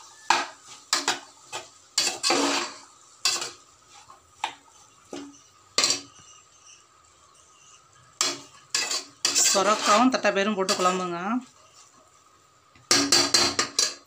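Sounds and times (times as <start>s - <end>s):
metal spoon scraping pot: 0.3s - 3.6s, 5.1s - 12.0s, 12.9s - 14.0s.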